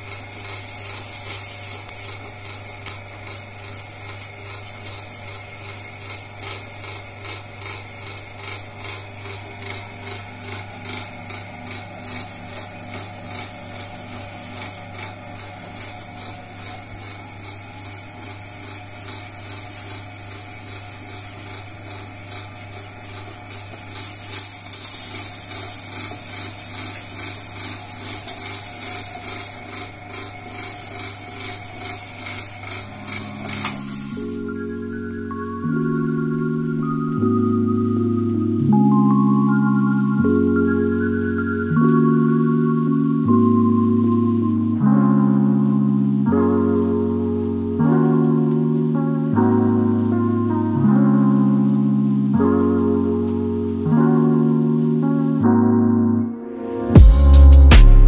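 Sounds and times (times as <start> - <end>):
potter's wheel motor humming: 0.0 - 38.7.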